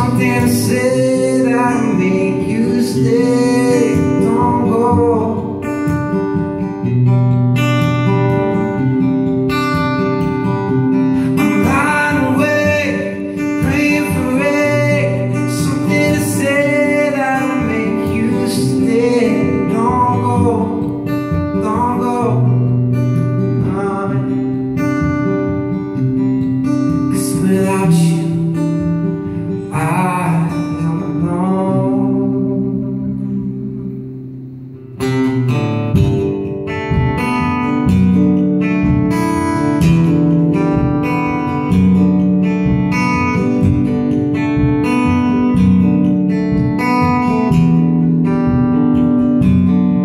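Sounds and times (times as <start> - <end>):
man singing: 0.0 - 5.8, 11.2 - 24.6, 27.0 - 34.0
acoustic guitar strumming: 0.0 - 50.0.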